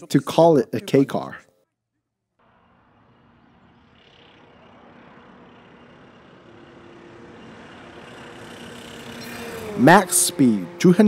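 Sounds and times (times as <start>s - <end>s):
car engine passing at speed: 2.4s - 11.0s.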